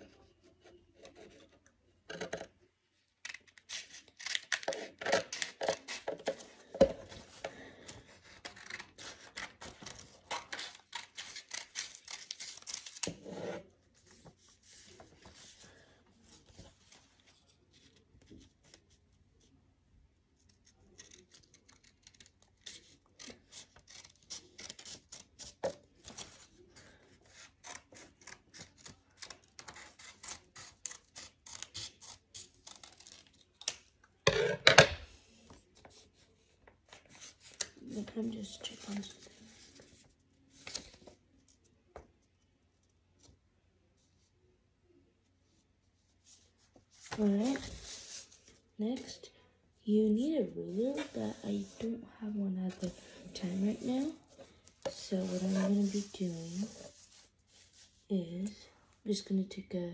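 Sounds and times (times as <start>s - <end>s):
scissors snipping paper: 3.2s - 6.4s, 8.2s - 13.2s, 20.4s - 26.4s, 27.2s - 33.9s.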